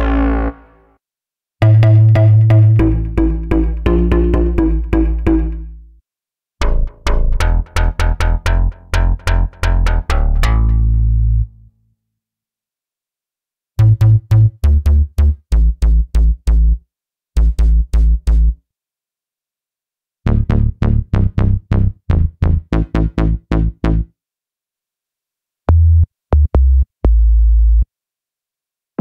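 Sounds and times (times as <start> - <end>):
synth bass notes: 0.0 - 0.9, 1.6 - 5.8, 20.3 - 24.1.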